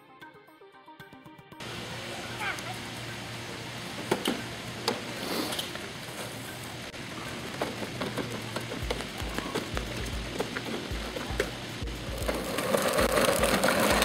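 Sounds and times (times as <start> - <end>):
mulch crunching under wheels and feet: 4.9 - 14.0.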